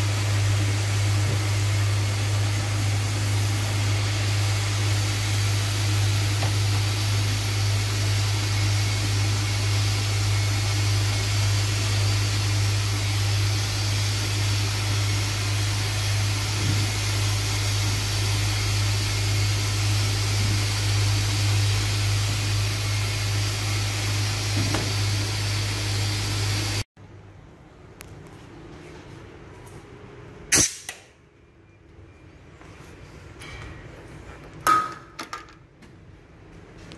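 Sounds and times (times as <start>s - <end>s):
vacuum pump humming and hissing: 0.0s - 26.9s.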